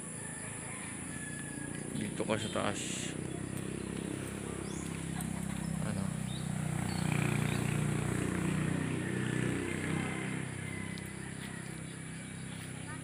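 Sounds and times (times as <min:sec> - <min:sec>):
passing vehicle engine hum: 0:00.0 - 0:13.0.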